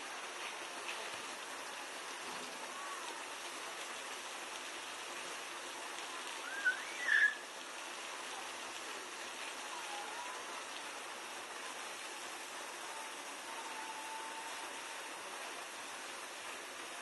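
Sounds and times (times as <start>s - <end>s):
water hissing from a hose: 0.0s - 17.0s
elephant high wavering call: 6.4s - 7.4s.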